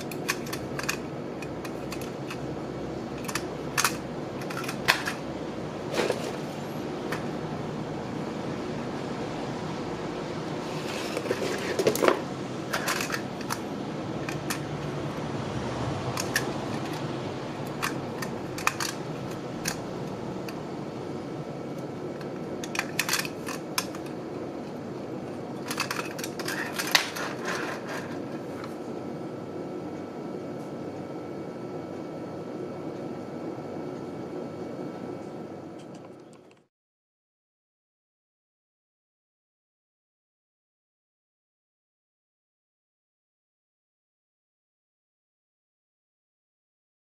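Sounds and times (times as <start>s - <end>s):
steady background hum: 0.0s - 36.7s.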